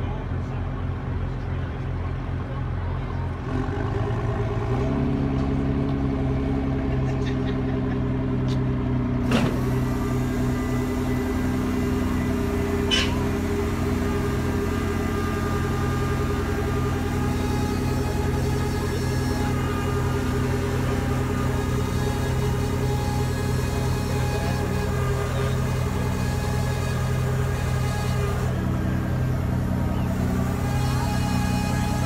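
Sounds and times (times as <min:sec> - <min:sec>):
engine droning: 0:00.0 - 0:32.0
sharp metallic clanks: 0:12.9 - 0:13.3.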